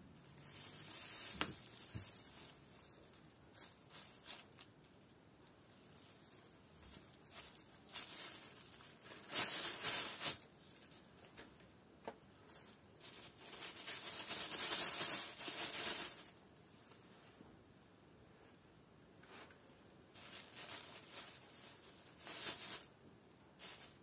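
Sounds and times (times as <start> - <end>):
plastic bag crinkling: 0.1 - 11.2, 12.5 - 16.4, 20.1 - 24.0.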